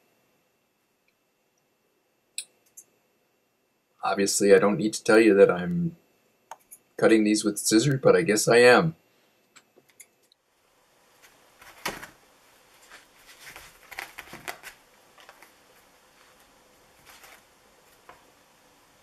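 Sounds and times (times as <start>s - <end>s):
soft taps and rustles: 11.2s - 18.3s.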